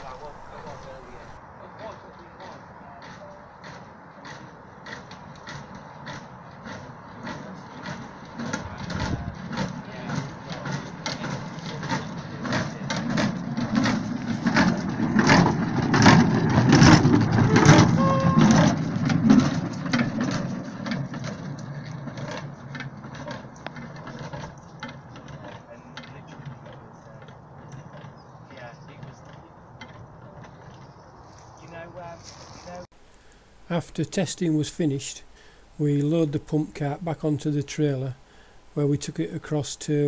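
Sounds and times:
rail cart wheels rumbling and clicking: 0.0s - 30.9s.

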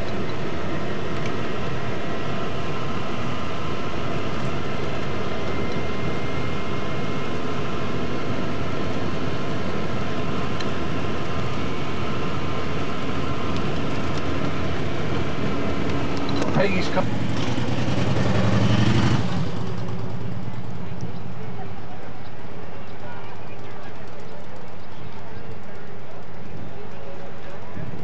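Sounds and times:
faint steady whine: 0.0s - 17.8s
vehicle road and engine noise: 0.0s - 28.0s.

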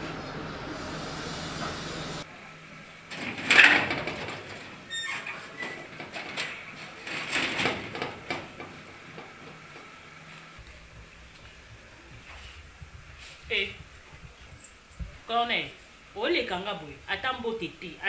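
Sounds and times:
metal gate clattering: 3.0s - 12.9s
gate door squeaking: 3.1s - 10.0s
metal clanking and scraping: 3.1s - 15.3s.

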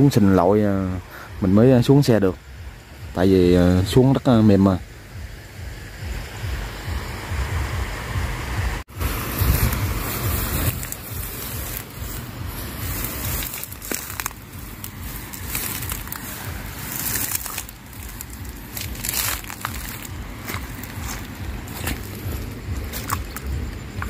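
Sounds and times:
footsteps through grass and mud: 8.9s - 24.0s
grass stems rustling and crunching: 9.0s - 24.0s.

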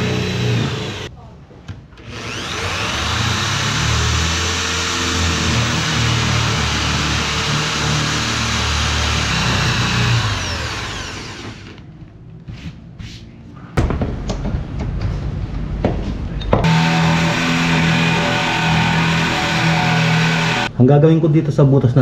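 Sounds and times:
electric drill boring wood: 0.0s - 1.1s, 2.0s - 11.8s, 16.6s - 20.7s.

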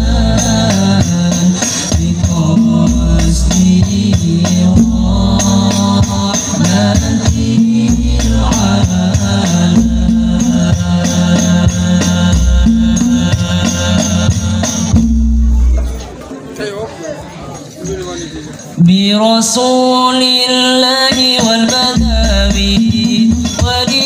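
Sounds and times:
bass drum strokes: 0.0s - 16.1s
frame drums playing fast rhythm: 0.0s - 16.2s, 20.8s - 24.0s
voices chanting: 2.3s - 16.2s.

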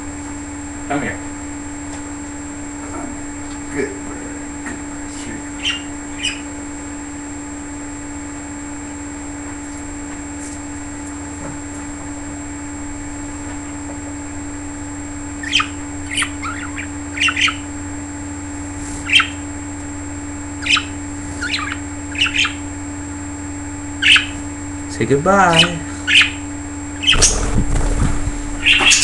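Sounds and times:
steady low hum: 0.0s - 29.0s
budgerigars chirping: 5.6s - 6.5s, 15.4s - 17.7s, 19.0s - 19.4s, 20.6s - 22.7s, 24.0s - 24.4s, 25.5s - 26.4s, 27.0s - 27.9s, 28.6s - 29.0s.

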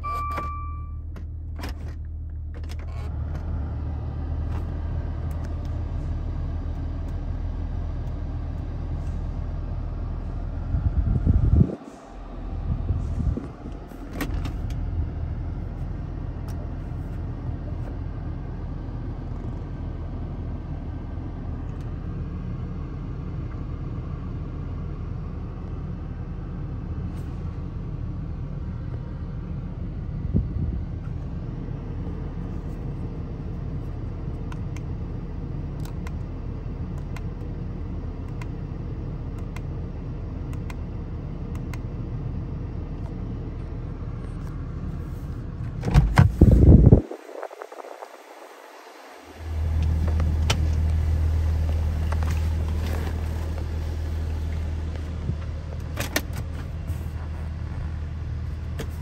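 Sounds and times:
car engine idling: 0.0s - 59.0s.

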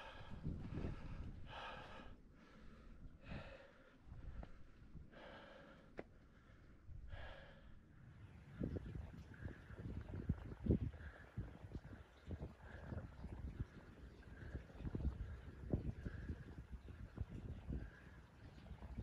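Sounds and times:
person breathing hard: 0.0s - 7.8s.

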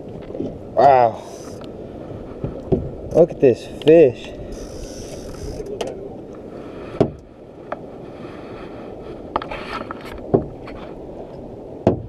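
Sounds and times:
knocks and clunks on boat deck: 2.4s - 6.1s, 6.9s - 7.8s, 9.3s - 12.0s.

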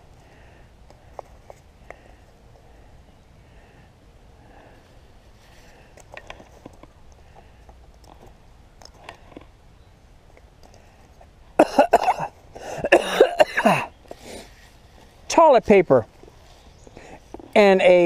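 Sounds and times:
faint clicks and rustles: 0.0s - 11.6s, 13.9s - 18.0s
man coughing hard: 11.6s - 13.9s.

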